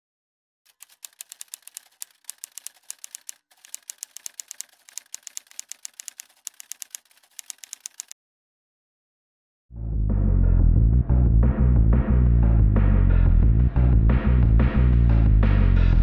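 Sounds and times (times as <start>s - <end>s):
typewriter keys clacking: 0.7s - 8.2s.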